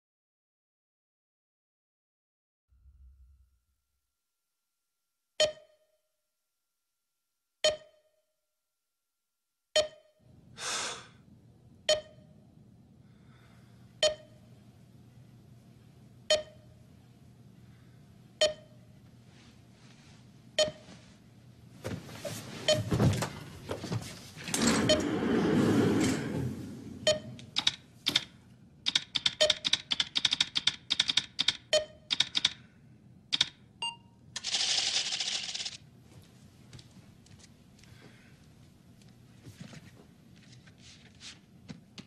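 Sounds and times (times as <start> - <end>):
keystrokes on computer keyboard: 27.4 - 32.6, 33.3 - 33.6.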